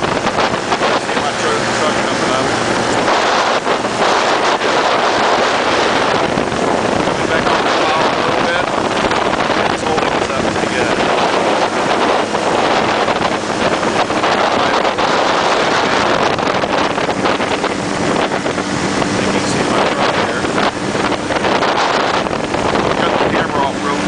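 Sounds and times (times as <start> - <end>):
aircraft engine running: 0.0 - 24.0
wind rush on microphone: 0.0 - 24.0.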